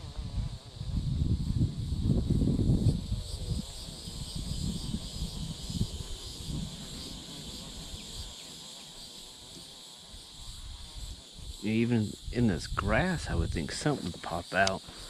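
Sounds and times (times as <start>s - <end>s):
low rumbling on microphone: 0.0s - 6.8s
insects droning: 0.0s - 15.0s.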